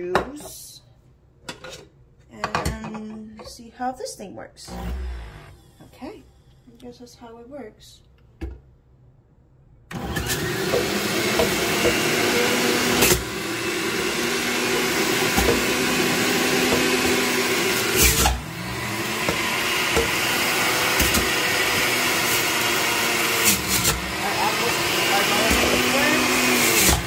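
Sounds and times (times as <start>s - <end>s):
juicer motor whirring: 4.7s - 5.9s, 9.9s - 27.0s.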